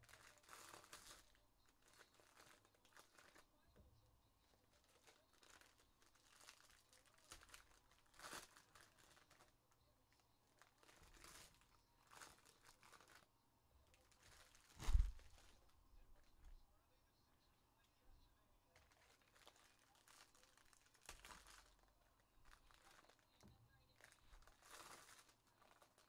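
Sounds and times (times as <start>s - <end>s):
foil wrappers tearing and crinkling: 0.0s - 3.5s, 4.7s - 9.5s, 10.6s - 13.3s, 18.8s - 23.3s, 24.0s - 26.0s
thump: 14.8s - 15.2s.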